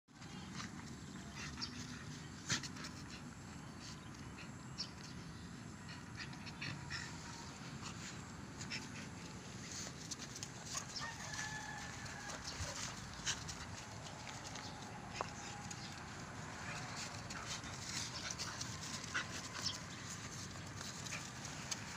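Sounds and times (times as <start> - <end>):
outdoor background noise: 0.1 - 21.9
dog paws on gravel path: 8.6 - 21.9
distant rooster crowing: 11.0 - 12.8.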